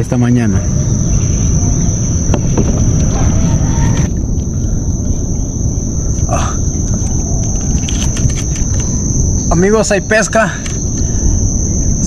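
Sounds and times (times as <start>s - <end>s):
insects trilling: 0.0s - 12.0s
loud low rumble: 0.6s - 9.5s.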